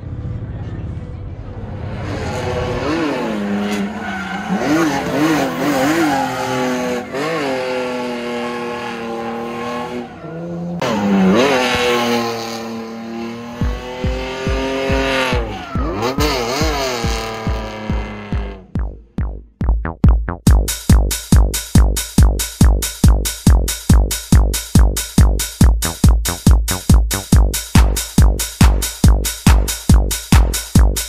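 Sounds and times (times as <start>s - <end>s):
car engine revving hard: 1.9s - 18.7s
tyres screeching on tarmac: 2.1s - 11.6s
electronic music beat: 10.8s - 31.0s.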